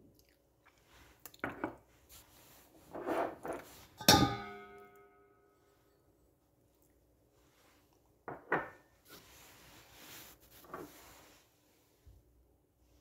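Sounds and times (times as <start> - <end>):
rustling of sugar and dish: 0.6 - 4.2, 7.2 - 12.3
ceramic dish clinking on hard surface: 4.0 - 5.2.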